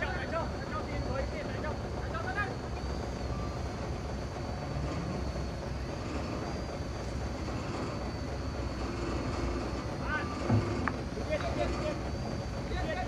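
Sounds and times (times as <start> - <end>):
diesel engine rumbling: 0.0 - 13.0.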